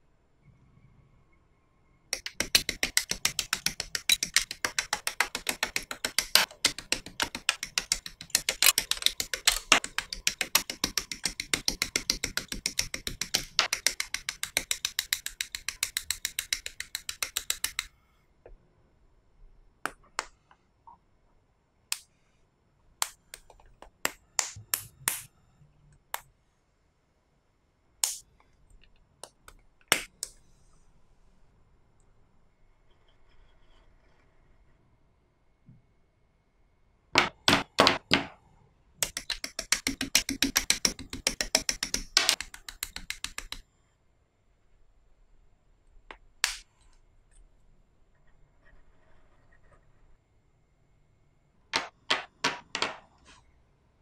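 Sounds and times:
rapid plastic clicks: 2.2 - 17.9, 39.0 - 43.6.

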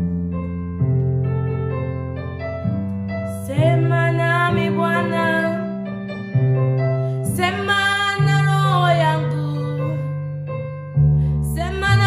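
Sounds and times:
sustained keyboard chords: 0.0 - 12.0
woman singing worship song: 7.3 - 10.1, 11.4 - 12.0.

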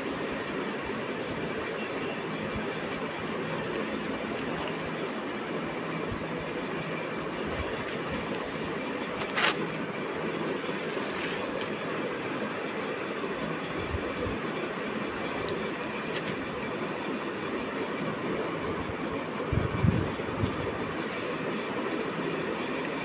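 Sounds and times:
noisy background rumble: 0.0 - 22.9
cat crunching dry kibble: 9.1 - 12.0.

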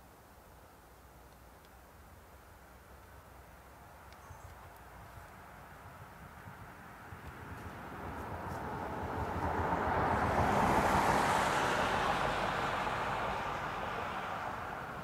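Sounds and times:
car tyre noise passing: 4.8 - 15.0.

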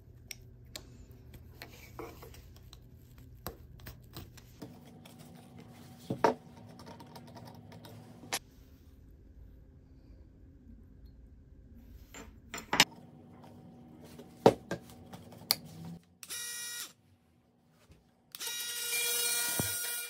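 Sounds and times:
oscillating multi-tool buzzing: 18.3 - 20.0.

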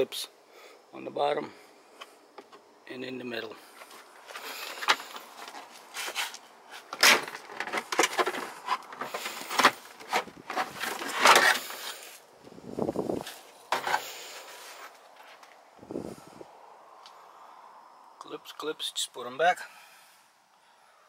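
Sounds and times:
plastic scraping and rattling: 3.8 - 12.2, 13.2 - 15.5.

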